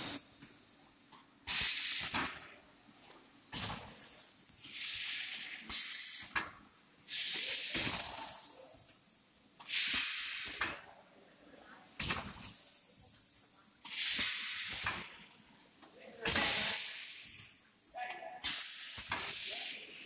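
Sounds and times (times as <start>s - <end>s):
compressed air hissing: 1.5s - 2.3s, 3.6s - 6.4s, 7.1s - 8.8s, 9.6s - 10.6s, 12.0s - 15.0s, 16.3s - 17.8s, 18.4s - 20.0s.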